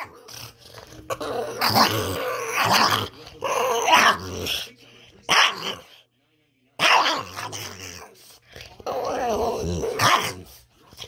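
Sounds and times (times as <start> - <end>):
dog growling and grumbling: 0.0 - 4.7, 6.8 - 11.0.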